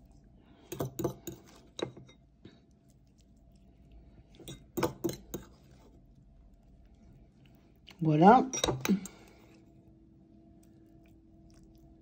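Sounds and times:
metal utensil clinking on dish: 8.5 - 9.1.

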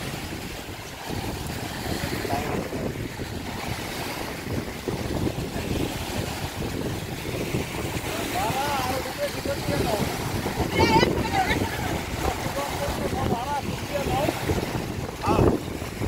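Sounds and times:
fast river water rushing: 0.0 - 16.0
wind buffeting microphone: 0.0 - 16.0.

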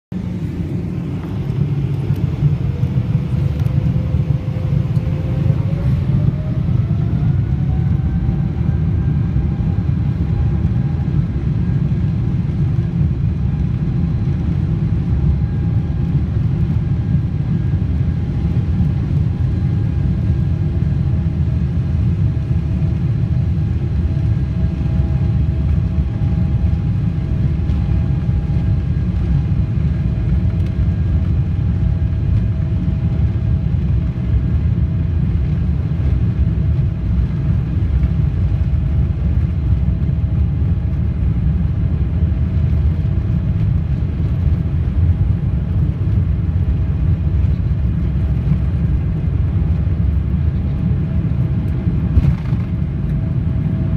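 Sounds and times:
takeoff roll rumble: 0.1 - 11.1, 36.7 - 53.9
jet engine whine rising: 0.1 - 53.9.

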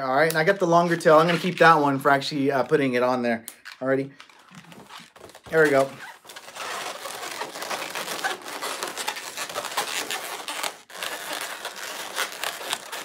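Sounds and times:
balloons squeaking while twisted: 0.8 - 2.0, 4.2 - 13.0.

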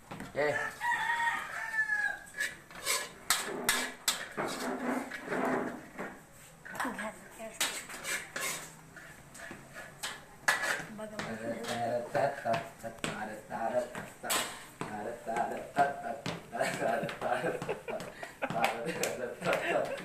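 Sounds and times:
metal utensil scraping a wok: 2.3 - 5.9, 7.6 - 10.9.

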